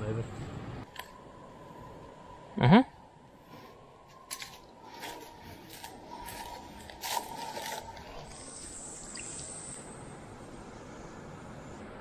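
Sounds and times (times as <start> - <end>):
dry leaves crunching underfoot: 4.2 - 8.2.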